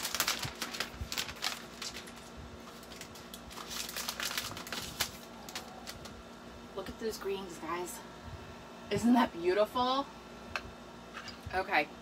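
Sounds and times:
paper wrap rustling: 0.0s - 6.2s.

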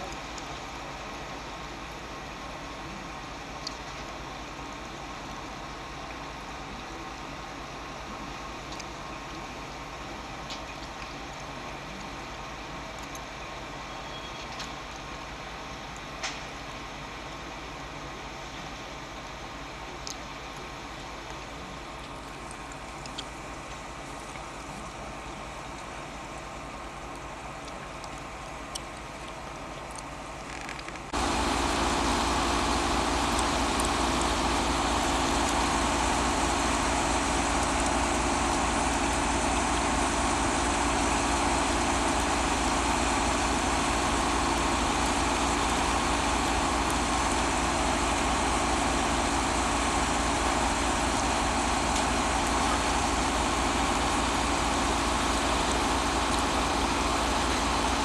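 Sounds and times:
train diesel engines running: 31.1s - 58.0s.

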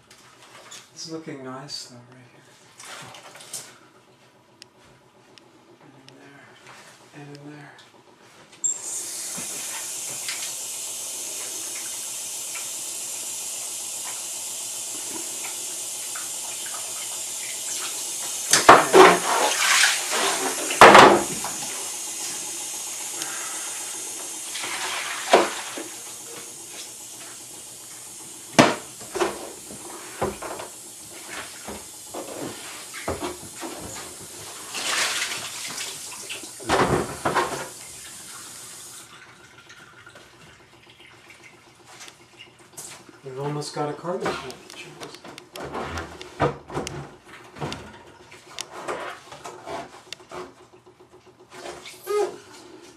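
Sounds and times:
water running hiss: 8.7s - 39.1s
water splashes: 18.6s - 20.8s.

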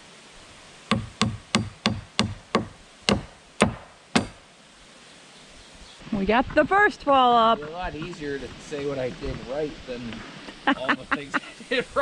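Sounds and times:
hammer driving nails into wood: 0.9s - 4.4s.

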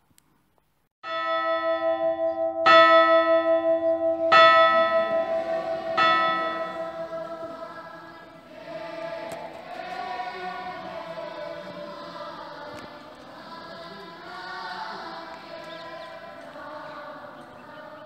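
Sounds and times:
large bell tolling: 1.0s - 8.1s, 10.9s - 12.6s.

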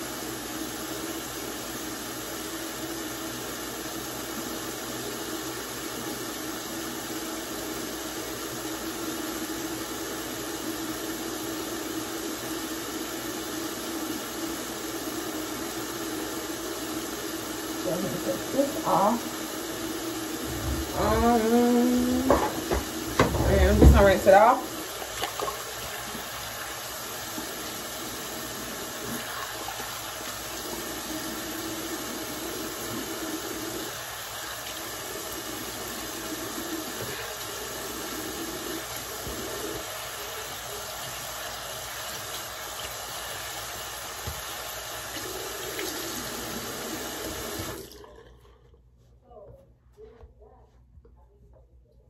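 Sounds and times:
sink tap running: 0.0s - 48.1s.

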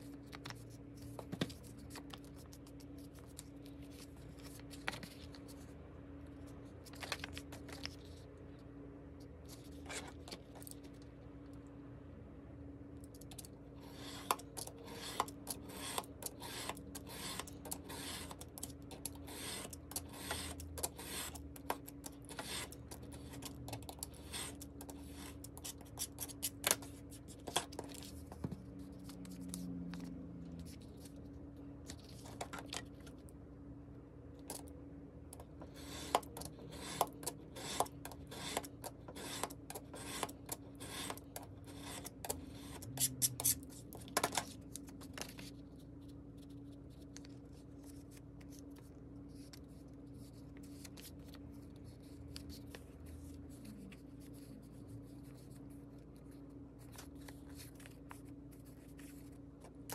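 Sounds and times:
craft knife cutting paper: 13.8s - 28.1s, 35.7s - 44.5s.

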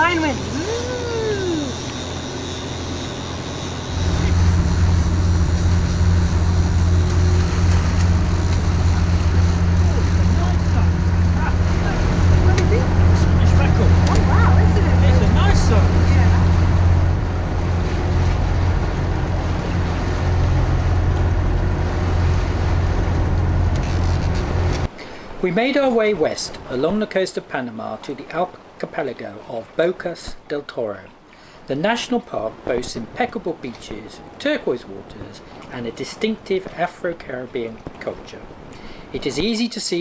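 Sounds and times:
boat diesel engine humming: 0.0s - 25.0s
water rushing around hull: 0.0s - 40.0s
wind: 0.0s - 40.0s.

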